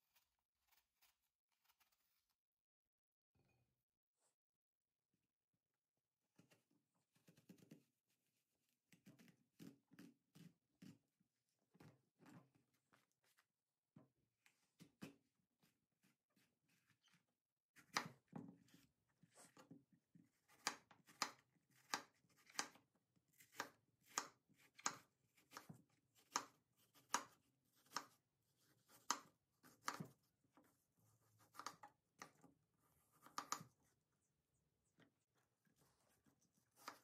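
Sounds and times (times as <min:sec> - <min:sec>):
knife slicing apple: 0:20.5 - 0:30.2, 0:36.6 - 0:37.0.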